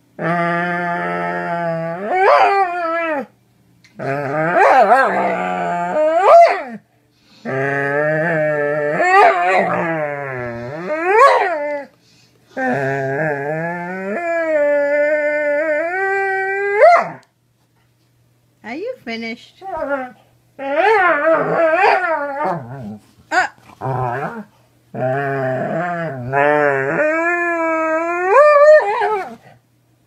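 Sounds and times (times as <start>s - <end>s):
dog howling: 0.2s - 3.3s, 4.0s - 6.8s, 7.5s - 11.9s, 12.6s - 17.2s, 19.8s - 23.0s, 23.8s - 29.4s.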